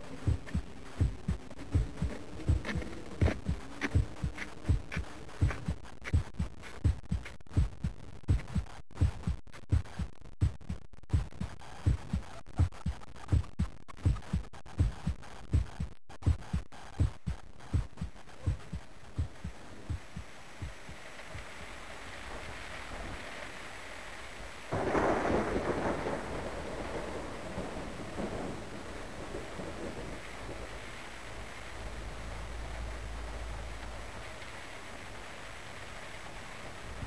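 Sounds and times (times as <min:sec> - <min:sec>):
low thunder rumble: 0:00.0 - 0:05.7, 0:24.4 - 0:37.0
rain falling: 0:00.0 - 0:07.7, 0:17.0 - 0:37.0
human heartbeat: 0:00.0 - 0:21.6, 0:24.7 - 0:30.6.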